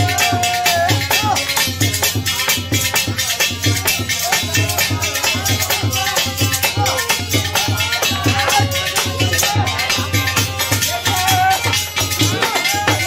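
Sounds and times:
hand drum beating fast rhythm: 0:00.0 - 0:13.0
harmonium: 0:00.0 - 0:13.0
high rattling percussion: 0:00.0 - 0:13.0.

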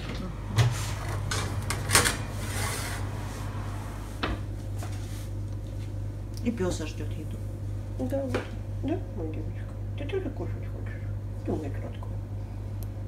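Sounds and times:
oven door shutting: 0:00.0 - 0:03.1
steady low hum: 0:00.0 - 0:13.0
tray scraping as it slides: 0:01.9 - 0:03.6.

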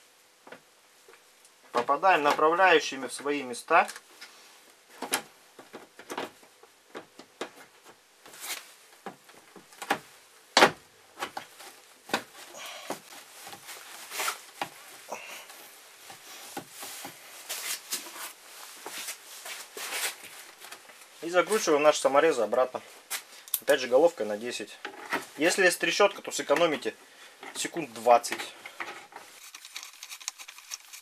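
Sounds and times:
scratchy handling noise: 0:27.4 - 0:31.0.

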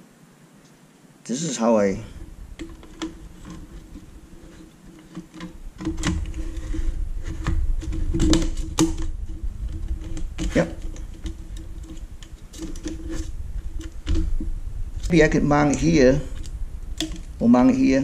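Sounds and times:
faint steady hum: 0:00.0 - 0:18.0
low rumble: 0:05.6 - 0:18.0.

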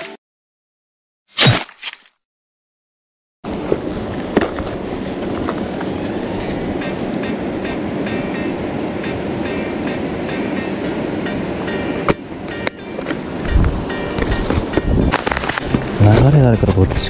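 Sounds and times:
river rushing: 0:03.5 - 0:16.6.

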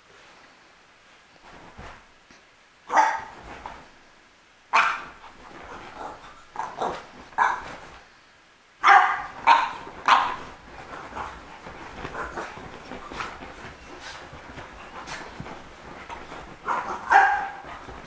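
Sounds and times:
puppy scuffling on bedsheet: 0:00.1 - 0:08.2, 0:08.8 - 0:18.0
puppy barking: 0:02.9 - 0:03.3, 0:04.7 - 0:05.2, 0:06.0 - 0:08.0, 0:08.8 - 0:10.7, 0:16.6 - 0:18.0.

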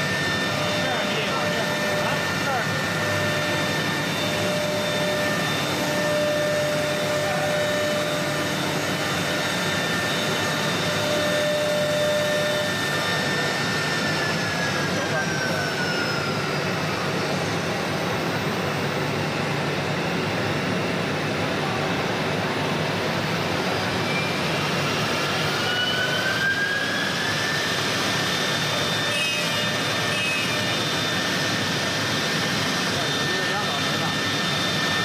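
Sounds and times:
router cutting wood: 0:00.0 - 0:17.0, 0:25.1 - 0:35.0
spindle motors whining: 0:00.0 - 0:35.0.

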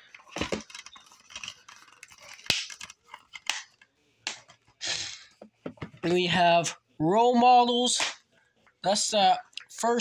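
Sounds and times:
plastic cases clicking and knocking: 0:00.0 - 0:04.6.

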